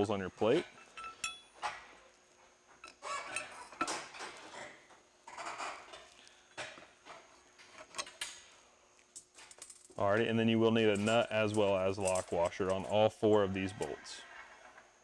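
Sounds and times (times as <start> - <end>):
metal bolts clinking: 0.6 - 1.9, 10.7 - 13.5
rustling and scraping: 0.6 - 10.0, 10.6 - 15.0.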